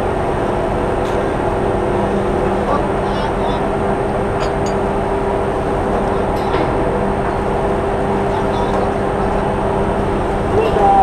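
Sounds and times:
ship machinery drone: 0:00.0 - 0:11.0.

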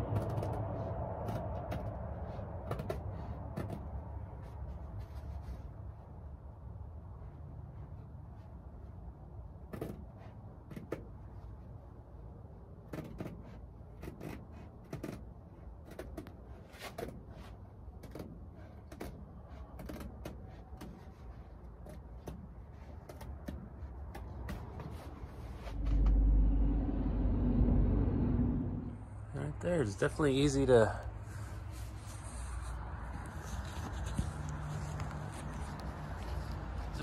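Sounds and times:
loud low rumble: 0:00.0 - 0:02.7, 0:25.4 - 0:29.9.

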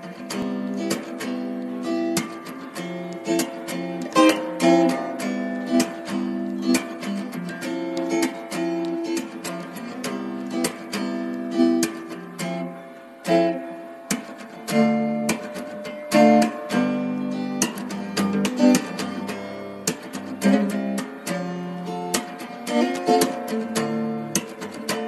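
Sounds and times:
acoustic guitar strumming chords: 0:00.0 - 0:25.0.

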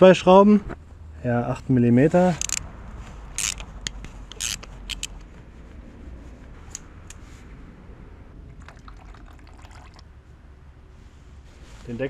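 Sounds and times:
steady low rumble: 0:00.1 - 0:09.1
ratchet metallic clicks and scrapes: 0:02.3 - 0:02.6, 0:03.3 - 0:05.3.

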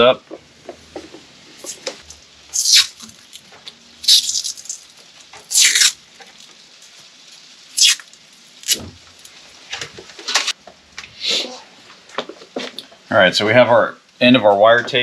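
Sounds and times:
tape ripping off roll: 0:01.6 - 0:06.6, 0:07.8 - 0:10.6.

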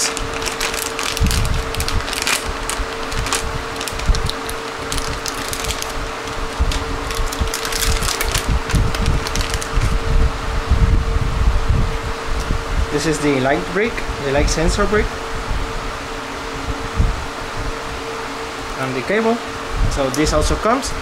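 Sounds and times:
plastic bag crinkling: 0:00.0 - 0:10.0
faint steady hum: 0:00.0 - 0:21.0.

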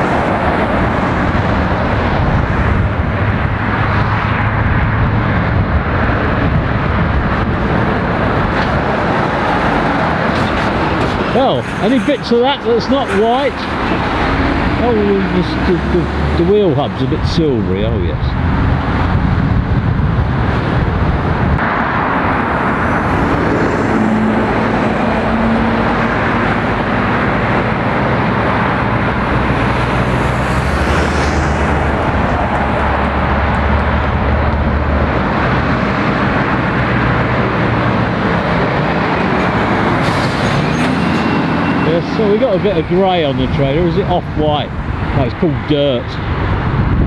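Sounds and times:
lorry passing close: 0:00.0 - 0:47.0
road traffic passing: 0:00.0 - 0:47.0.

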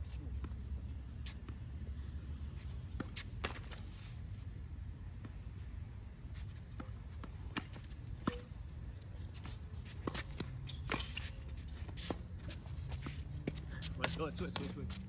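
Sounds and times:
shoes shuffling on court: 0:00.0 - 0:15.0
ball bouncing on hard court: 0:06.7 - 0:08.6, 0:13.0 - 0:14.9
racket striking tennis ball: 0:07.5 - 0:08.6.

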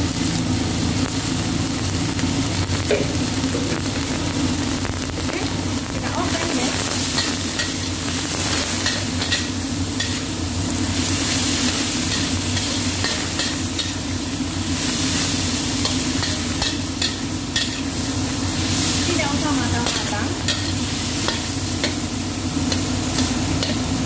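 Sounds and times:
exhaust fan hum: 0:00.0 - 0:24.0
stir-fry sizzling in a wok: 0:00.0 - 0:24.0
metal spatula scraping pan: 0:19.8 - 0:22.0.

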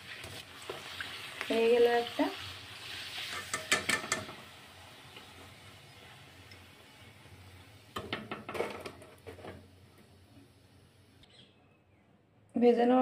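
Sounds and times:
frying oil hissing: 0:00.0 - 0:11.2
metal utensils clinking on pan: 0:03.2 - 0:04.4.

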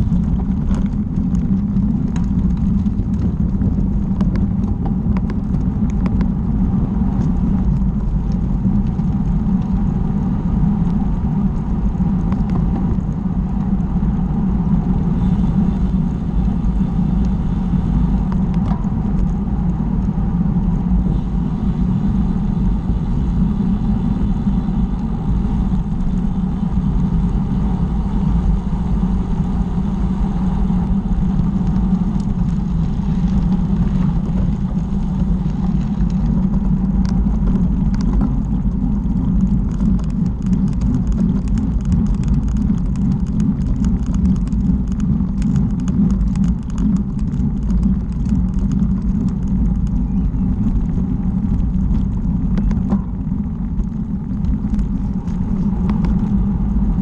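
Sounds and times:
tyre noise on tarmac: 0:00.0 - 0:57.0
wind buffeting microphone: 0:00.0 - 0:57.0
bicycle clicks and rattles: 0:26.8 - 0:57.0.

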